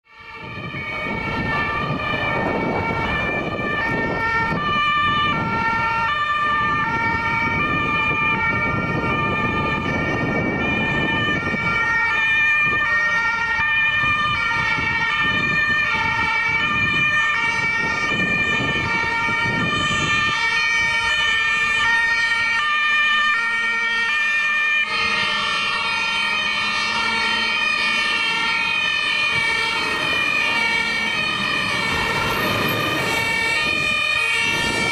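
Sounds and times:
two-tone emergency sirens: 0.0s - 34.9s
low vehicle rumble: 26.2s - 34.9s.

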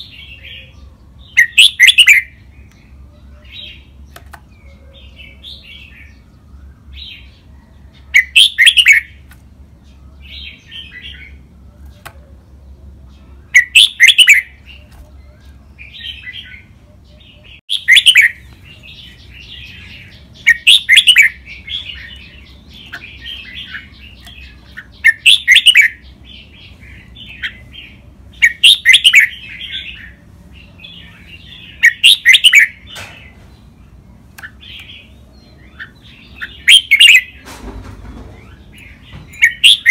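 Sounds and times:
bird song phrases: 0.0s - 39.9s
bird chattering notes: 1.3s - 2.4s, 13.4s - 30.2s, 30.8s - 33.0s, 34.3s - 37.4s, 38.4s - 39.9s.

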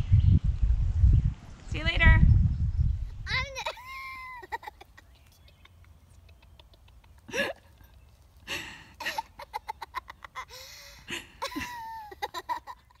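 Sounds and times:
girl giggling: 3.3s - 13.0s.

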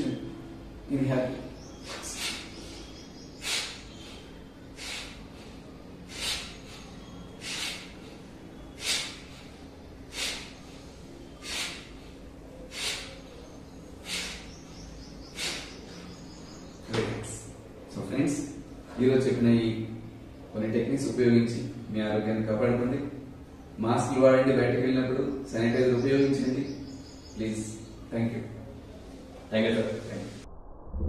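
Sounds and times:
sharp hissing breaths: 1.6s - 16.8s.

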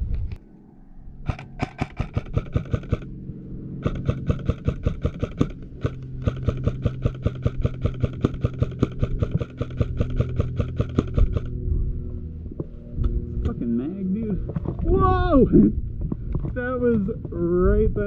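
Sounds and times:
steady low hum: 0.0s - 18.0s
airsoft rifle full-auto bursts: 1.3s - 3.1s, 3.8s - 11.5s.

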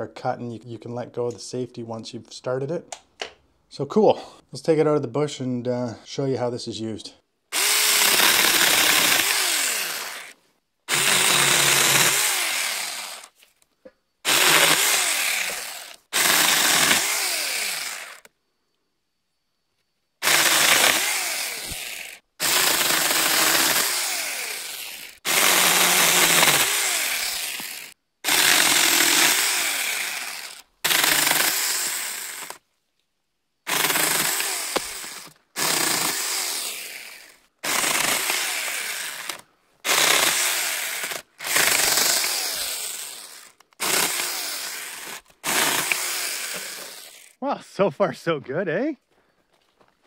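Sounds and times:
electric chainsaw cutting branches: 7.5s - 13.4s, 14.2s - 18.3s, 20.2s - 32.6s, 33.7s - 47.4s.

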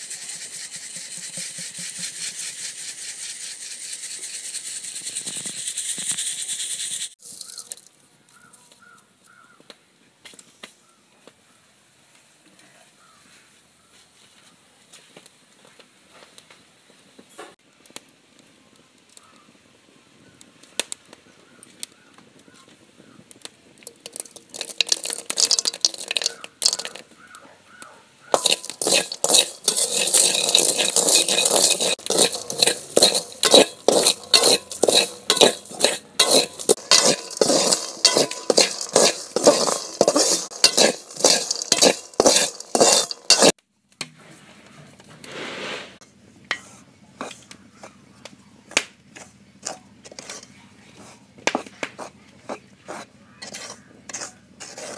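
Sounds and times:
metal spoon scraping metal pan: 0.0s - 6.1s, 23.8s - 27.1s, 28.3s - 43.6s, 45.2s - 47.5s, 49.2s - 51.2s, 52.0s - 54.9s.

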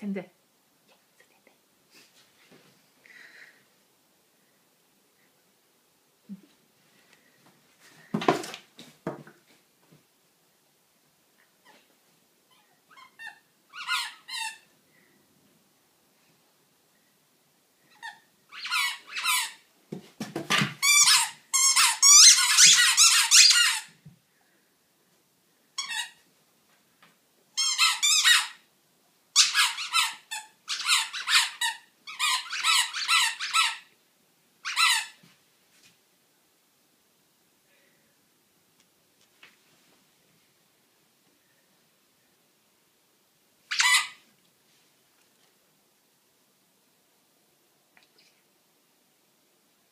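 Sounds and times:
squeaky toy squeaking: 12.5s - 14.7s, 17.9s - 19.6s, 20.8s - 23.9s, 25.8s - 26.2s, 27.6s - 28.6s, 29.4s - 33.9s, 34.6s - 35.2s, 43.7s - 44.2s.

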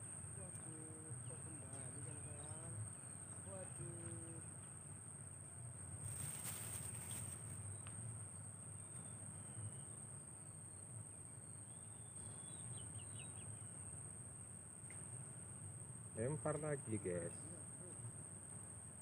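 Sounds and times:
rustling: 6.0s - 7.6s
insect buzzing: 6.0s - 7.8s.

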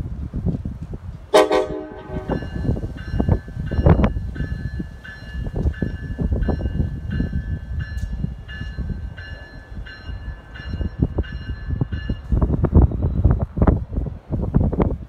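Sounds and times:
train rumbling past: 0.0s - 15.0s
wheels clacking on rails: 0.4s - 15.0s
bell ringing: 2.1s - 12.2s.

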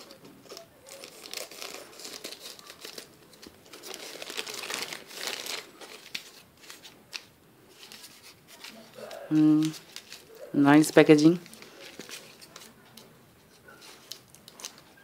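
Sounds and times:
scissors cutting plastic: 0.0s - 7.3s, 11.5s - 15.0s
plastic bag crinkling: 0.0s - 15.0s.

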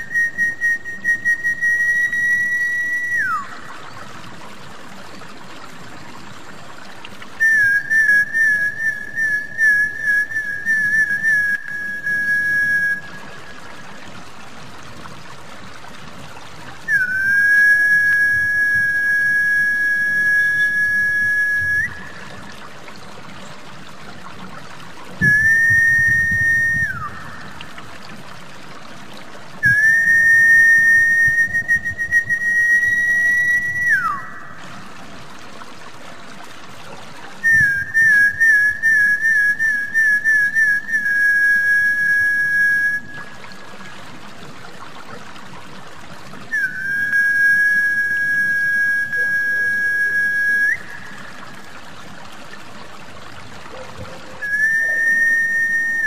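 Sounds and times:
high held whistles: 0.0s - 3.6s, 7.4s - 13.5s, 16.9s - 22.2s, 25.2s - 27.6s, 29.6s - 34.6s, 37.4s - 43.3s, 46.5s - 51.3s, 54.4s - 56.0s
trickling water: 0.0s - 56.0s.

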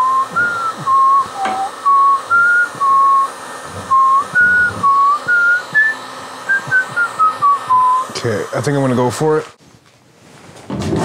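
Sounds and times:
person whistling a tune: 0.0s - 8.1s.

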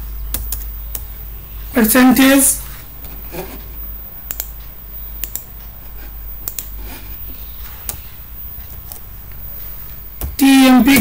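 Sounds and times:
steady low hum: 0.0s - 11.0s
computer mouse clicks: 0.3s - 1.1s, 4.3s - 10.4s.

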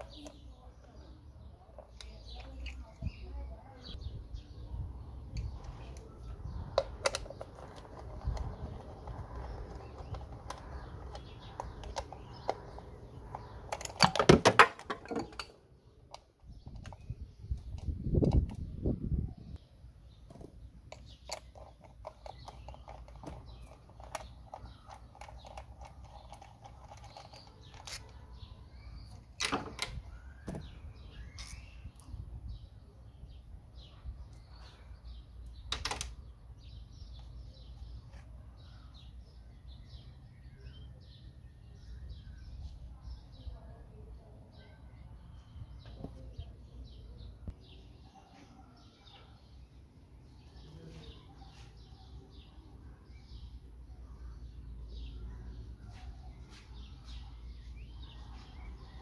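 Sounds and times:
birds chirping: 0.0s - 59.0s
plastic and metal clicks: 6.7s - 18.6s.

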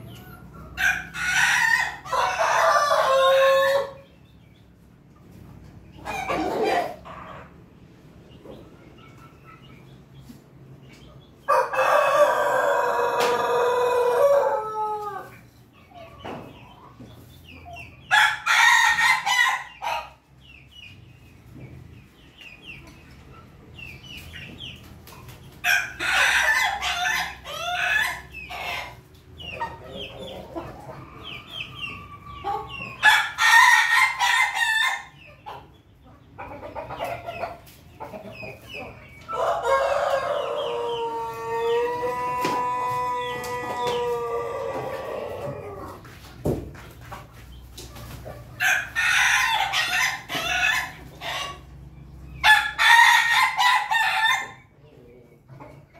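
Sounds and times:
chickens clucking: 0.0s - 55.9s
roosters crowing: 0.7s - 4.1s, 11.5s - 15.4s, 25.6s - 29.0s, 30.0s - 35.2s, 39.2s - 46.1s, 48.6s - 54.8s.

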